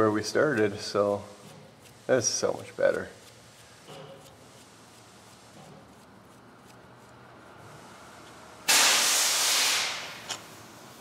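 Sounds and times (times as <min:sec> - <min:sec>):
compressed air hissing burst: 0:08.6 - 0:11.0.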